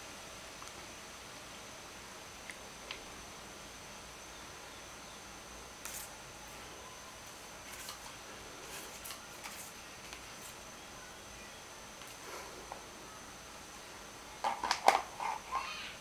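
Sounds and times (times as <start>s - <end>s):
faint high-pitched whine: 0.0s - 16.0s.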